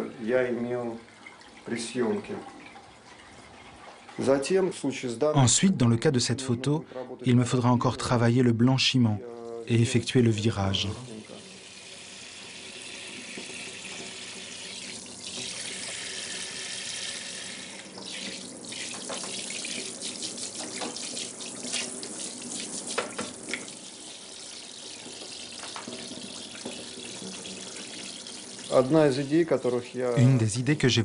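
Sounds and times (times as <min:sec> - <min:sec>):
tap water running into sink: 0:00.0 - 0:04.6, 0:09.2 - 0:30.7
water splashes and drips: 0:12.9 - 0:16.0, 0:17.7 - 0:30.1.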